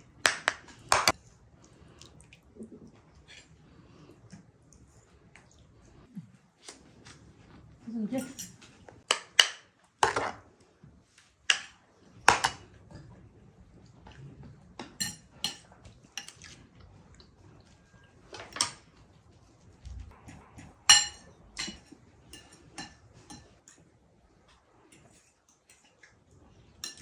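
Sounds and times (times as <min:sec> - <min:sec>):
cutlery clinking on plates: 0:14.8 - 0:16.6, 0:20.2 - 0:23.9, 0:26.8 - 0:27.0.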